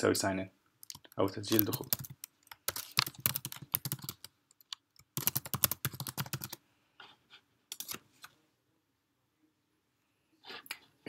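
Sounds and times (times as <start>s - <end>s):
typing on computer keyboard: 0.8s - 6.6s, 7.7s - 8.0s.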